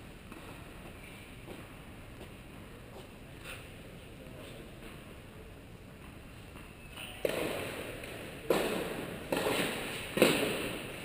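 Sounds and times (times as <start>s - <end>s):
tennis ball bouncing on hard court: 6.0s - 11.0s.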